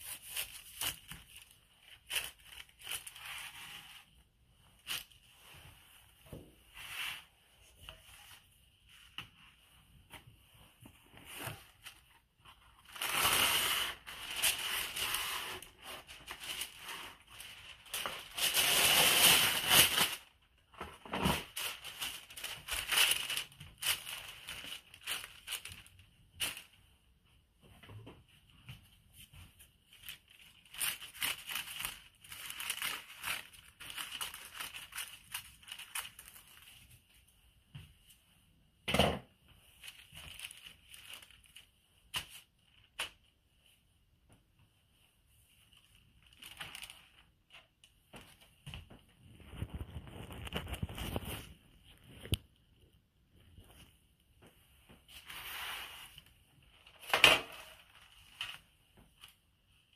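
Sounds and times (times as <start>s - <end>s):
liner sheet crinkling: 0.0s - 4.1s, 11.1s - 26.8s, 29.1s - 37.2s, 39.7s - 43.3s, 45.5s - 52.5s, 55.0s - 59.8s.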